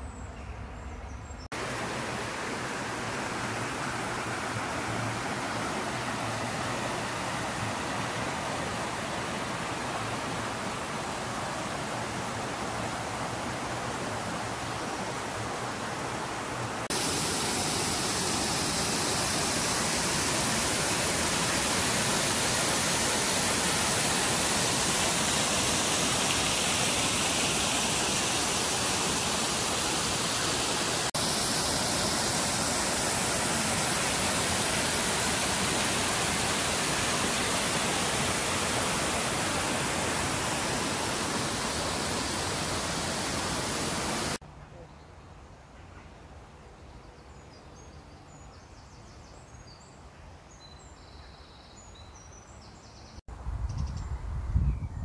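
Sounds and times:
rocky stream rushing: 1.6 - 44.4.

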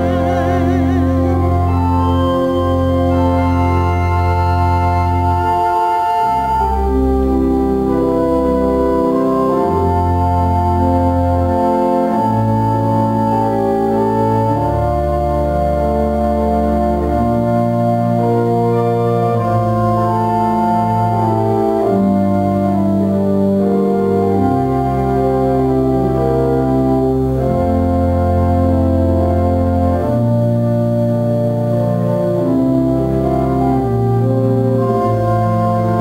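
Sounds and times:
organ playing chords: 0.0 - 36.0.

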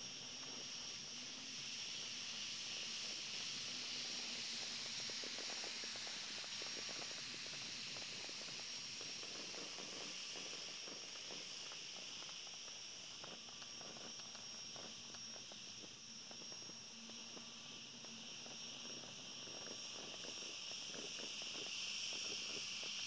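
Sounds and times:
faint crackles and clicks: 9.3 - 22.6.

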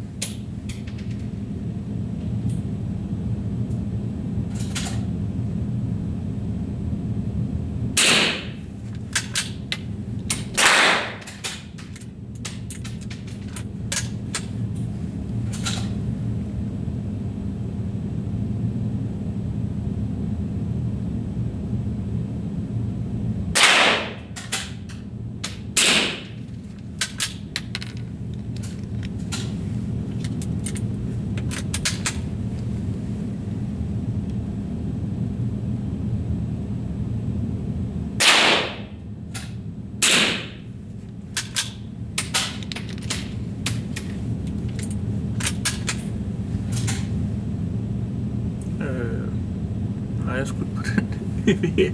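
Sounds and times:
steady low hum: 0.0 - 51.9
rifle shots: 10.6 - 11.2, 23.6 - 24.1, 38.2 - 38.8.

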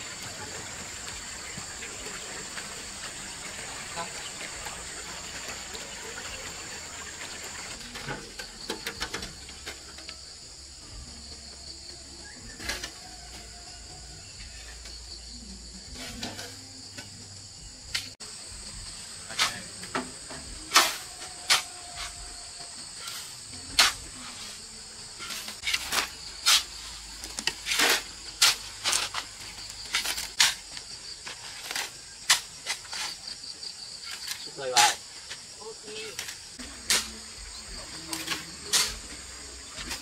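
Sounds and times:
insects chirping: 0.0 - 40.0
sharp knocks and scrapes: 18.8 - 37.4, 38.0 - 40.0.

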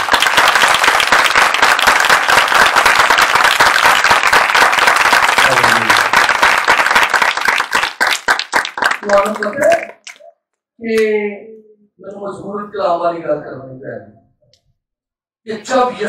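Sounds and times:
crowd applauding: 0.0 - 10.2.

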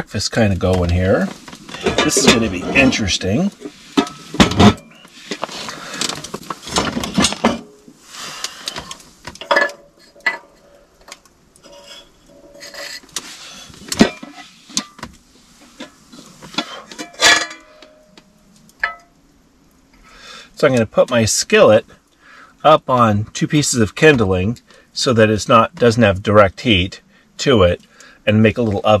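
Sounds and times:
rustling: 0.6 - 19.2
metal pots clanking: 1.4 - 7.8, 8.7 - 10.6, 13.9 - 15.0, 15.8 - 18.1, 18.8 - 19.1.

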